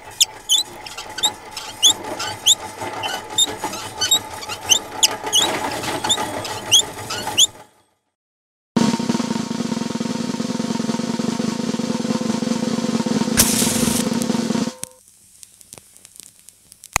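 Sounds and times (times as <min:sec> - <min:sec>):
low rolling clatter: 0:00.0 - 0:07.4
squeaking cart wheels: 0:00.0 - 0:07.8, 0:13.4 - 0:14.1.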